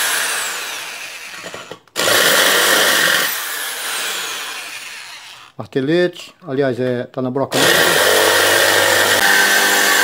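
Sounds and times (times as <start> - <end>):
electric drill boring into screw: 0.0 - 5.5, 7.6 - 10.0.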